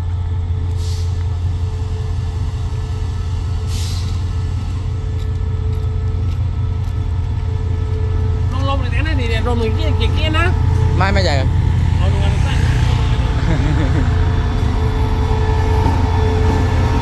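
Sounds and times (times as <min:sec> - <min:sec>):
diesel locomotive idling: 0:00.0 - 0:17.0.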